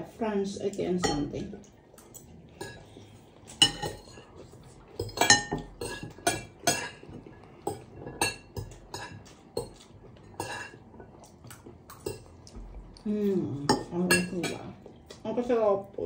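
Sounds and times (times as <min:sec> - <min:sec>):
cutlery clinking on ceramic plates: 0:03.5 - 0:04.1, 0:05.0 - 0:10.8, 0:13.7 - 0:14.7.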